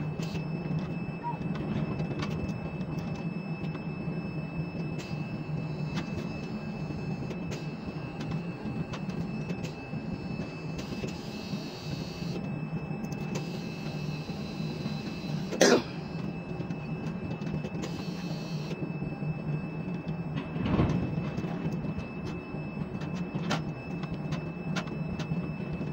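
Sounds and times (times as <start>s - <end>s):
crane machinery hum: 0.0s - 25.9s.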